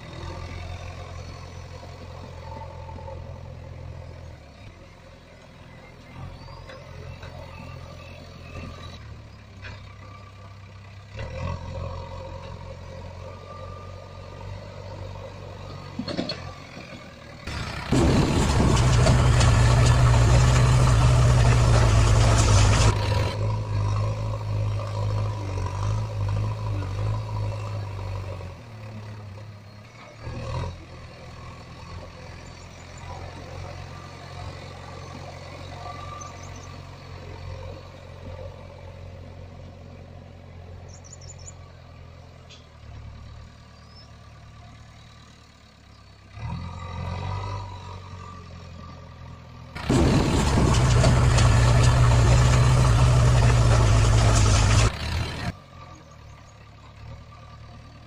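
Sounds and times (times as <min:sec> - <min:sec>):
vehicle engine idling: 0:30.9 - 0:46.5, 0:48.9 - 0:58.0.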